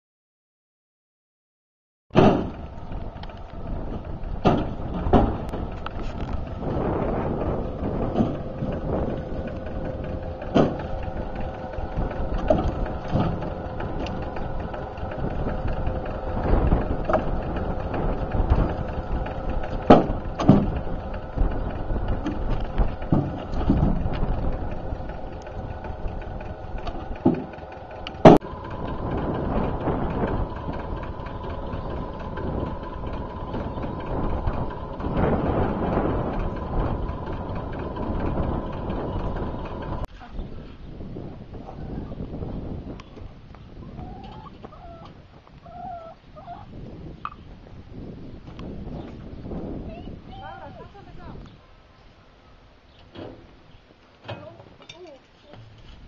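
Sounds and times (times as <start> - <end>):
logs knocking into metal trailer: 2.2 - 2.7, 4.3 - 5.8, 6.7 - 15.7, 16.3 - 28.5
tractor engine idling: 2.2 - 45.2.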